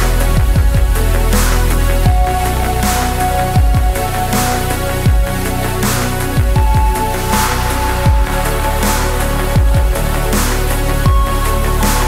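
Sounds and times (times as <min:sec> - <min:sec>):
electronic music: 0:00.0 - 0:12.0
deep bass drum hits: 0:03.5 - 0:04.2, 0:05.1 - 0:05.4, 0:06.4 - 0:07.1, 0:08.1 - 0:10.1.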